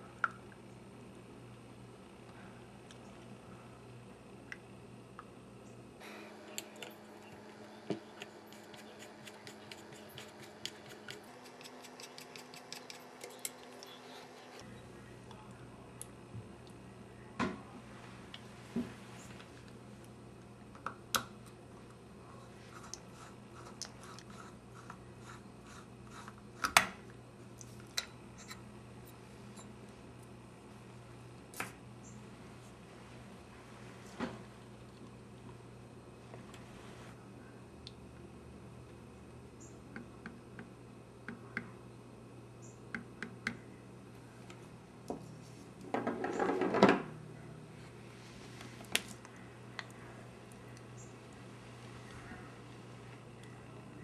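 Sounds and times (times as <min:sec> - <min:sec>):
steady low hum: 0:00.0 - 0:46.2, 0:47.0 - 0:54.0.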